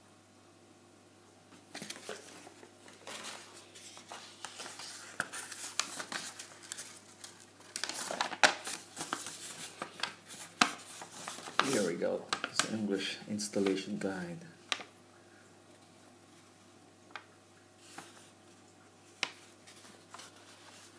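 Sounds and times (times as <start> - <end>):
paper rustling and crinkling: 1.6 - 12.9, 17.1 - 20.9.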